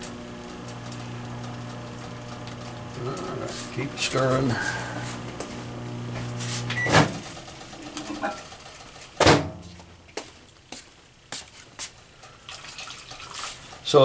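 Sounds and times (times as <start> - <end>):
microwave oven humming: 0.0 - 9.6
microwave click and beep: 6.7 - 7.1
loud sharp knock: 9.2 - 9.6.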